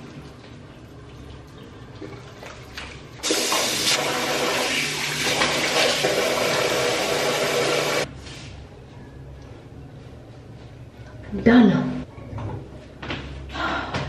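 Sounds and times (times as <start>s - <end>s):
tap water running into sink: 2.0s - 8.0s.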